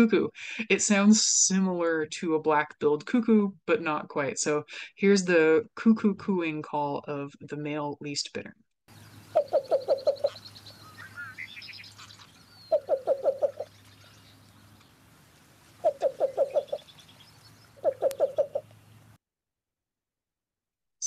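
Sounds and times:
bird cooing call: 9.0 - 14.6, 15.8 - 18.7.

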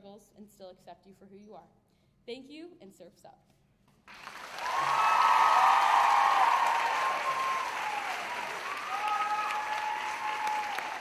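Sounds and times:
audience applauding: 4.1 - 11.0
high drawn-out cheers: 4.2 - 11.0.

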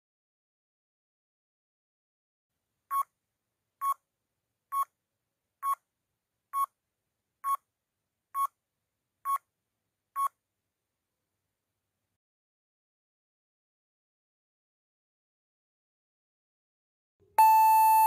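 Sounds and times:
short electronic beeps: 17.4 - 18.0.

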